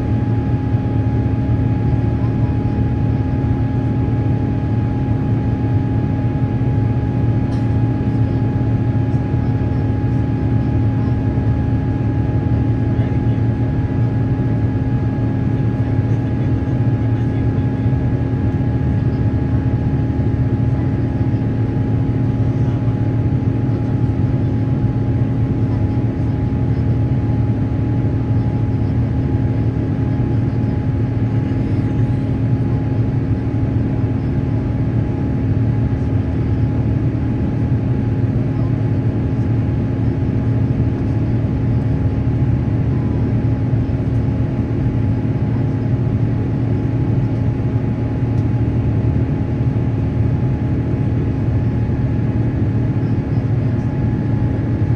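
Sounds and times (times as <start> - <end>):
jet engine drone: 0.0 - 54.9.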